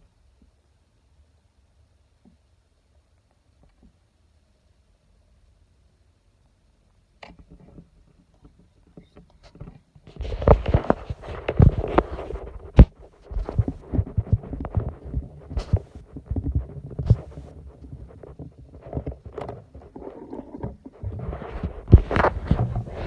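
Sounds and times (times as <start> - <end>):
low thuds: 20.7 - 23.0.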